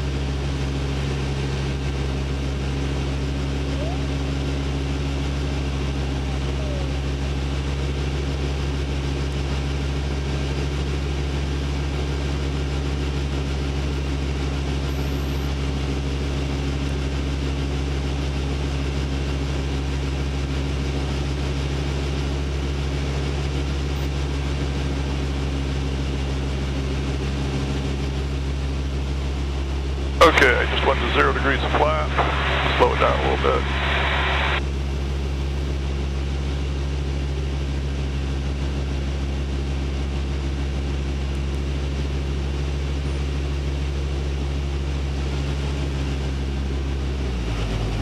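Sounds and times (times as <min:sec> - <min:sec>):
aircraft engine droning: 0:00.0 - 0:14.9, 0:15.5 - 0:48.0.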